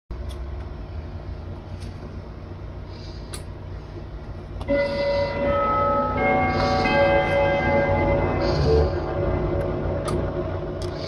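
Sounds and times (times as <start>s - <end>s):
low steady rumble: 0.1s - 11.0s
close breathing: 2.8s - 9.4s
grandfather clock chime: 4.6s - 10.7s.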